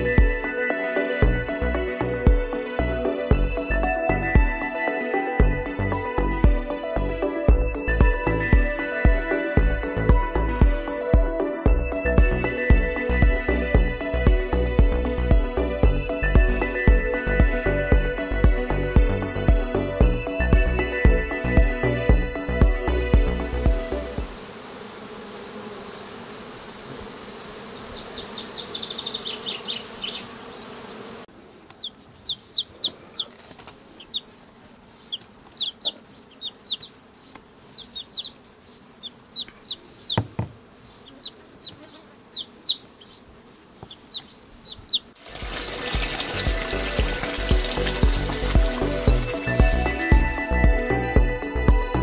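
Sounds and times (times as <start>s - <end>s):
small birds chirping: 26.8s - 50.0s
single knock: 40.1s - 40.6s.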